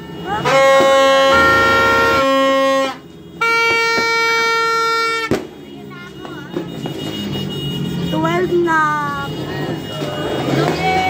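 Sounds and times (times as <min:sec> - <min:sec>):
party horn blasts: 0:00.0 - 0:08.4.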